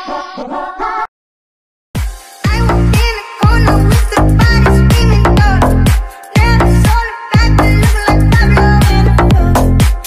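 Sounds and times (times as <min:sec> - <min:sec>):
electronic dance music: 0:02.0 - 0:10.0.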